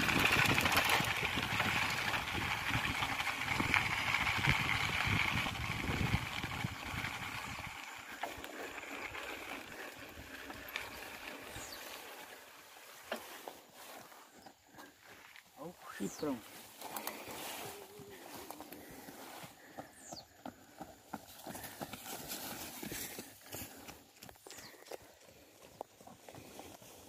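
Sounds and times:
wind buffeting microphone: 0:00.0 - 0:08.4
bicycle tyres and frame rattling: 0:00.0 - 0:27.0.

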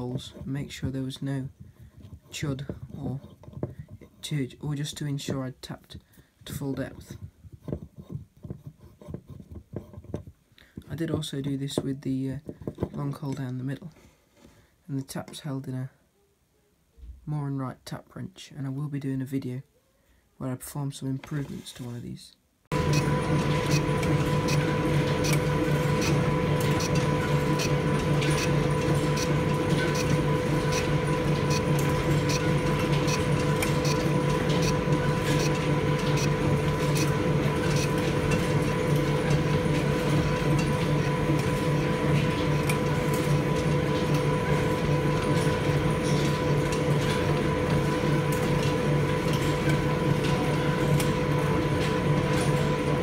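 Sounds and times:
lathe gear hum: 0:22.7 - 0:53.0.

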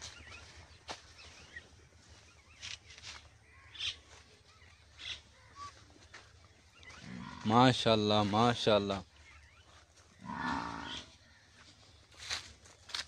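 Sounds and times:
footsteps on dry leaves: 0:00.0 - 0:06.5, 0:09.1 - 0:13.0
faint bird calls: 0:00.0 - 0:07.9, 0:08.6 - 0:12.5.

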